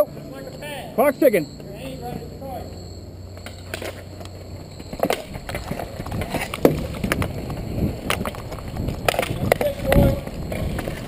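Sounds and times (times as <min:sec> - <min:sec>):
inline skates scraping: 0:01.7 - 0:11.0
sticks and puck clacking: 0:04.9 - 0:11.0.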